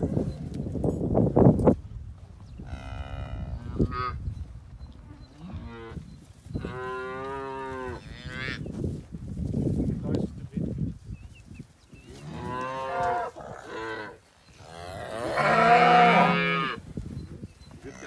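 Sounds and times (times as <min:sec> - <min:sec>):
cattle mooing: 0:12.3 - 0:16.8.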